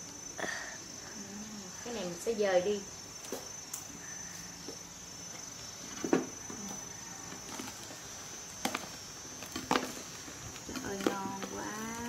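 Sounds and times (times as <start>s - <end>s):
faint steady high whine: 0.0s - 12.0s.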